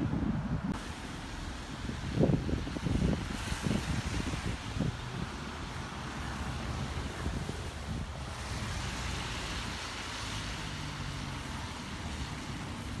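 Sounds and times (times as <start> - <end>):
road traffic rumble: 0.0 - 13.0
wind on microphone: 0.0 - 13.0.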